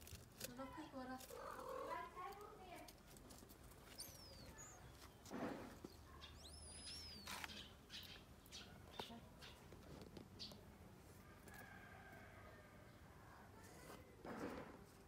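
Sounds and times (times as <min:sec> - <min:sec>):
faint bird whistled calls: 0:03.9 - 0:04.9, 0:06.2 - 0:08.7.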